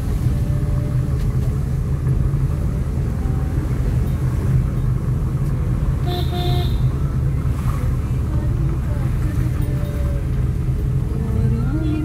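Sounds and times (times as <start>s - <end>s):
road vehicle rumbling: 0.0s - 12.0s.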